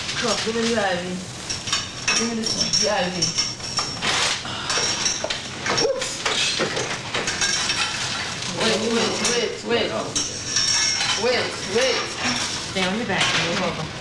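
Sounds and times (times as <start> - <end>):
voices: 8.5 - 10.3, 11.0 - 13.9.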